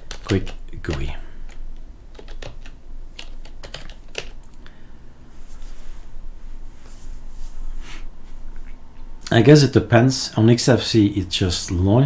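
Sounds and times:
keyboard typing clicks: 0:00.0 - 0:04.6.

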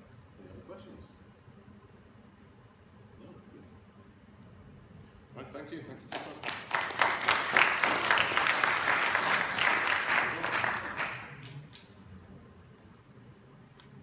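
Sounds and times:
audience applauding: 0:06.1 - 0:11.7.

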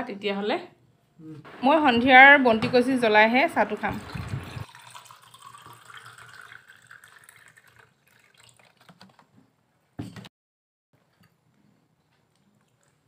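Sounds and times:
water pouring into steel tumbler: 0:03.9 - 0:09.2.

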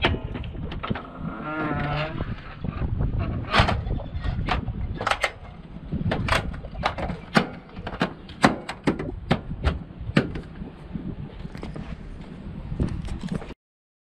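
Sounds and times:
low steady rumble: 0:00.0 - 0:13.5
hand patting metal panel: 0:06.1 - 0:10.5.

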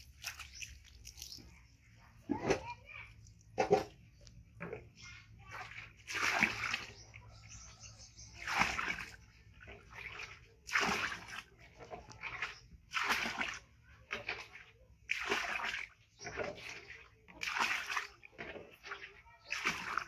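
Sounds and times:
water splashing: 0:00.0 - 0:20.0.

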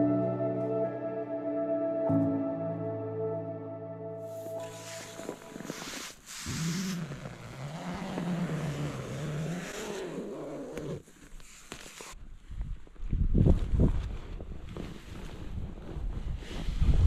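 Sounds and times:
tent fabric rustling: 0:04.3 - 0:17.0.

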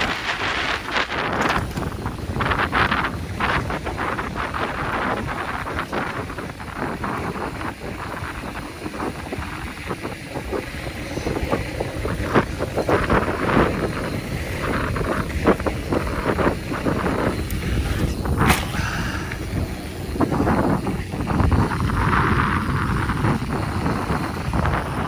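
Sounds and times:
bike rattling and knocking: 0:00.0 - 0:25.0
bike tyres on dirt: 0:00.0 - 0:25.0
wind noise on microphone: 0:00.0 - 0:25.0
sharp clack: 0:18.4 - 0:18.9.

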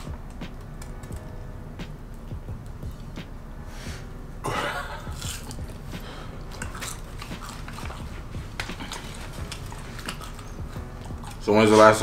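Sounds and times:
chewing crunchy food: 0:05.0 - 0:11.9.

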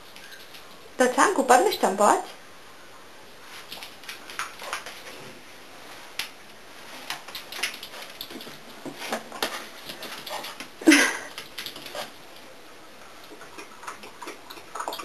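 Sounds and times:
puppy claws clicking on hard floor: 0:03.7 - 0:05.0, 0:07.0 - 0:10.7, 0:11.3 - 0:12.2, 0:13.3 - 0:15.0.

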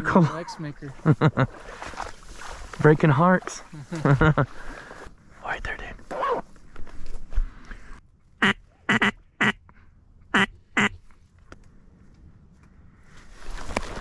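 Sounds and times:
duck quacking: 0:08.4 - 0:09.6, 0:10.3 - 0:11.0.

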